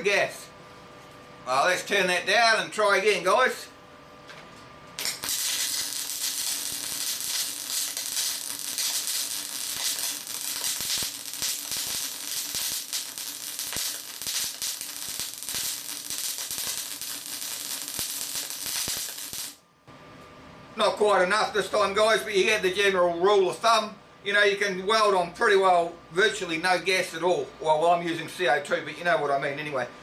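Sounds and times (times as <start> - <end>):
popping spatter: 5.0 - 19.6
welding arc crackling and sizzling: 5.0 - 19.6.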